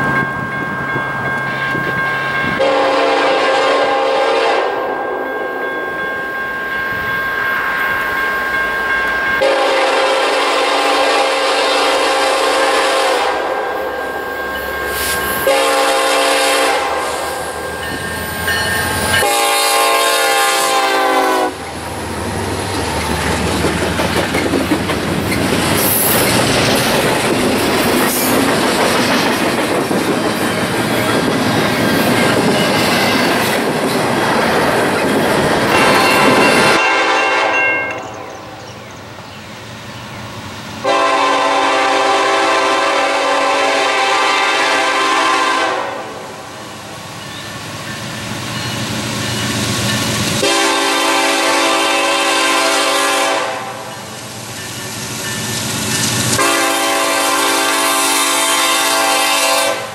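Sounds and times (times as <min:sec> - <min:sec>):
train cars clattering on rails: 0:00.0 - 0:04.0, 0:17.6 - 0:40.2, 0:47.2 - 0:53.2, 0:53.8 - 0:58.6
locomotive air horn blasts: 0:02.5 - 0:05.2, 0:09.4 - 0:14.2, 0:14.9 - 0:17.5, 0:19.1 - 0:21.6, 0:35.7 - 0:38.0, 0:40.8 - 0:46.3, 0:50.4 - 0:53.9, 0:56.4 - 0:59.9.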